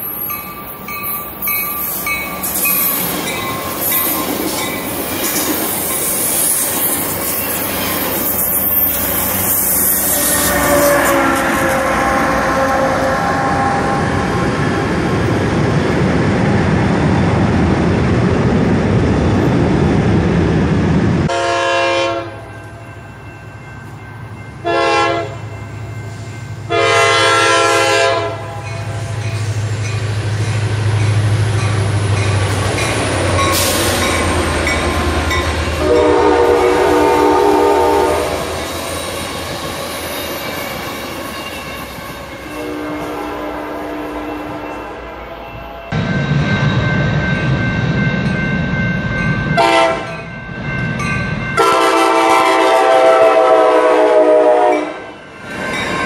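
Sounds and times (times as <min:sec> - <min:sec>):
train coaches rolling past: 0:00.0 - 0:56.0
diesel locomotive rumble: 0:02.4 - 0:45.1
locomotive horn blasts: 0:09.7 - 0:14.7, 0:21.3 - 0:22.5, 0:24.6 - 0:25.4, 0:26.7 - 0:29.2, 0:35.8 - 0:38.5, 0:42.0 - 0:45.0, 0:49.6 - 0:50.1, 0:51.6 - 0:55.1.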